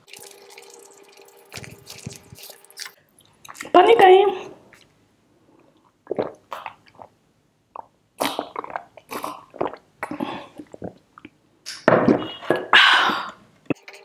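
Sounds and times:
gulping and swallowing water: 1.5 - 2.6, 5.8 - 11.4.

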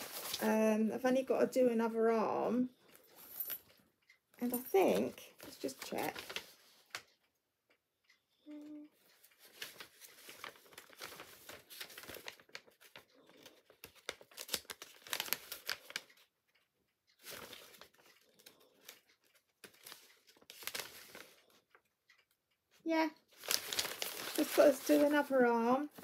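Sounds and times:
craft materials crinkling and rustling: 0.0 - 0.6, 4.4 - 7.2, 9.0 - 22.2, 23.2 - 26.0.

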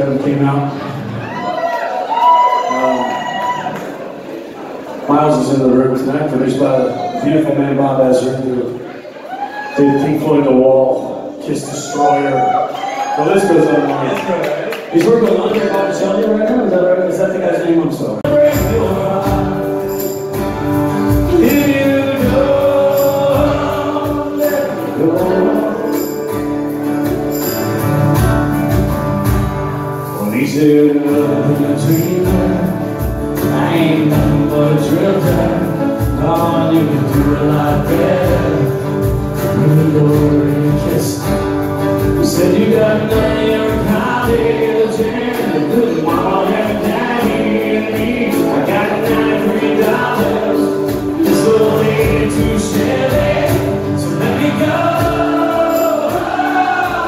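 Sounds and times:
acoustic guitars strummed: 18.2 - 57.0
hand percussion beat: 18.2 - 57.0.

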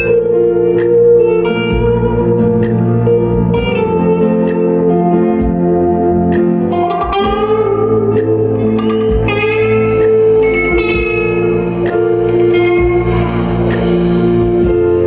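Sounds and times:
electric guitar melody: 0.0 - 15.0
keyboard chords: 0.0 - 15.0
steady beat with hi-hat: 0.0 - 15.0.

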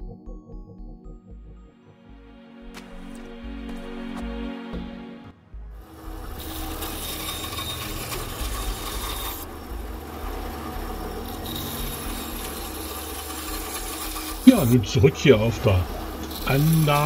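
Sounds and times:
motor hum: 2.1 - 17.0
band saw cutting wood: 5.8 - 17.0.

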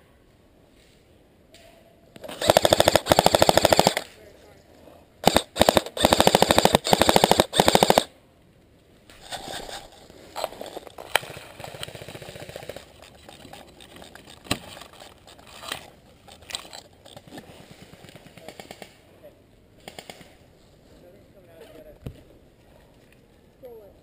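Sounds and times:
airsoft gun bursts: 2.2 - 4.1, 5.2 - 8.1, 10.6 - 15.8
rustling through undergrowth: 8.6 - 19.0.

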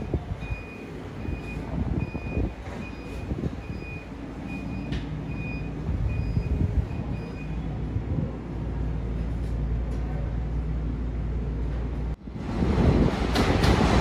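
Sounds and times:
high electronic beeps: 0.0 - 7.6
subway train rumbling: 0.0 - 14.0.

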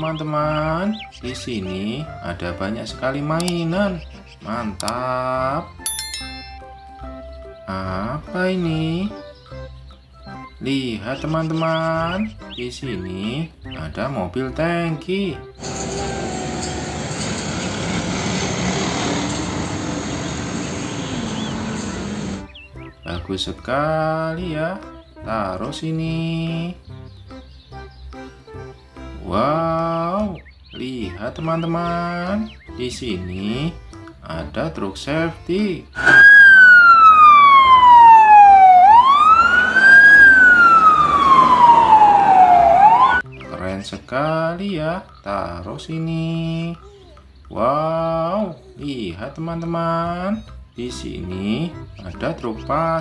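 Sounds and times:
truck engine: 15.6 - 22.5, 36.0 - 43.2.

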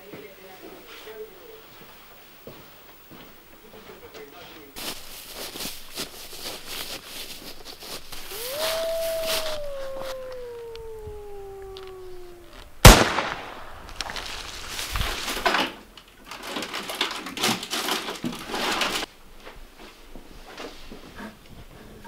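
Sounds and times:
rustling and scuffing: 0.0 - 10.2, 13.9 - 15.7, 18.4 - 21.8
long howl: 8.2 - 12.9
rifle shot: 12.8 - 14.2.

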